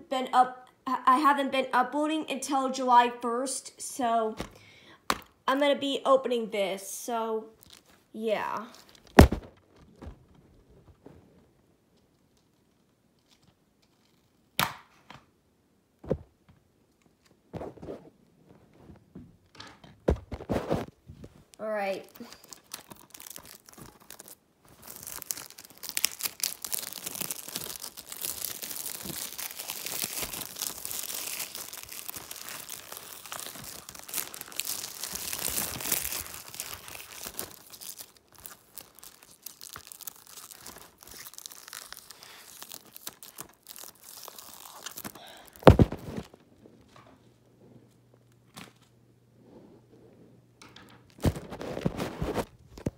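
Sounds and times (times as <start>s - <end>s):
plastic wrap crinkling and tearing: 7.5s - 9.5s, 21.5s - 46.4s, 51.1s - 52.9s
loud thump: 9.2s - 9.6s.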